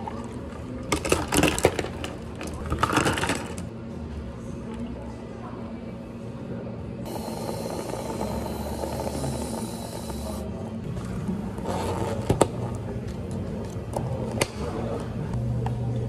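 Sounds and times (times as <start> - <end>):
whipped cream dispenser hissing: 7.1 - 10.4.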